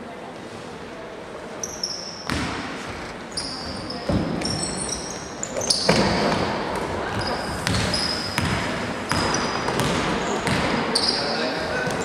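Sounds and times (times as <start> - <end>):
sneakers squeaking: 1.6 - 12.0
basketball bouncing on court: 2.2 - 2.7, 5.6 - 10.8.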